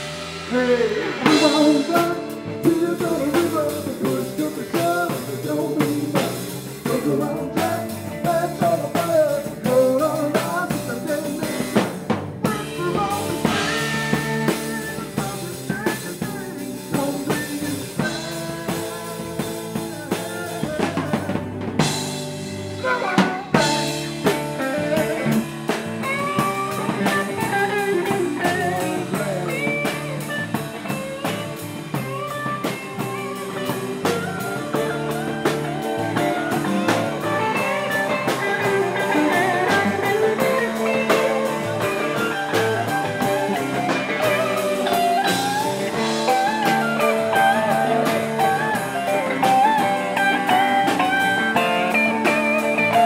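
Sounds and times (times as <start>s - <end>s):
snare and cymbal hits: 0.0s - 7.0s, 11.2s - 20.3s
blues-rock band playing: 0.0s - 53.0s
electric guitar: 0.0s - 53.0s.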